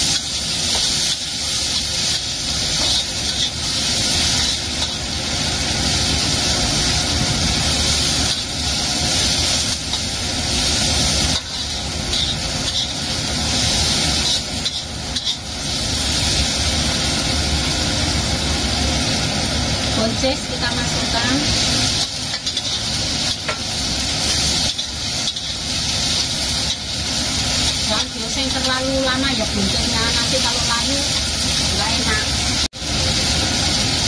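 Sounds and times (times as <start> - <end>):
metal spatula scraping wok: 0.0 - 5.7, 8.3 - 16.1, 21.4 - 32.2
food sizzling in hot oil: 0.0 - 34.0.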